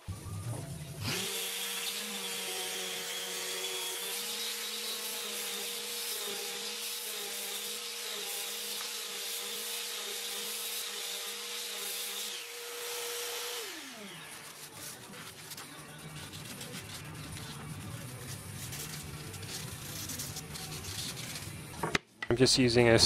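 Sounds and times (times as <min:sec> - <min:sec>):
orbital sander motor whine: 0:00.1 - 0:05.6.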